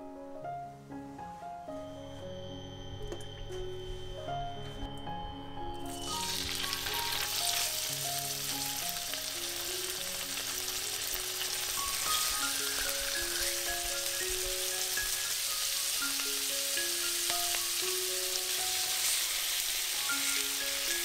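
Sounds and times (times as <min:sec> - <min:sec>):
meat sizzling in hot oil: 0:06.0 - 0:21.0.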